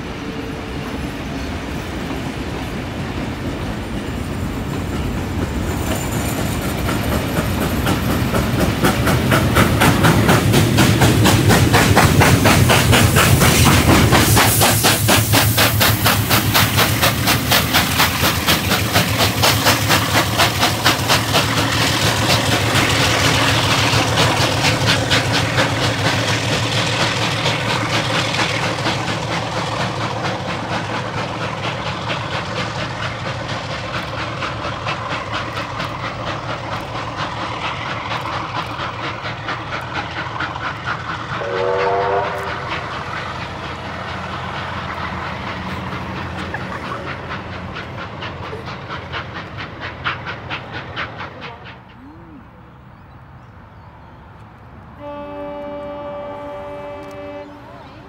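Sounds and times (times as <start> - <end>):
open-air background: 0.0 - 58.0
train rumbling past: 0.0 - 58.0
train horn blast: 41.4 - 42.7, 55.0 - 58.0.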